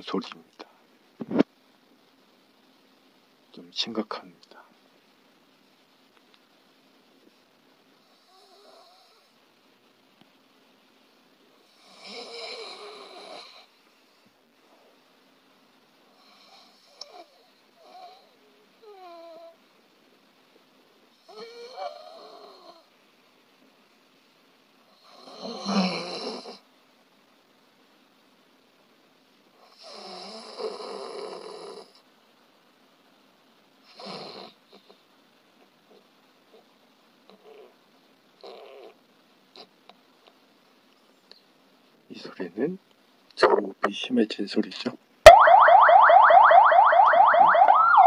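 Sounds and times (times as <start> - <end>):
person snoring: 25.0 - 26.6, 29.7 - 32.0.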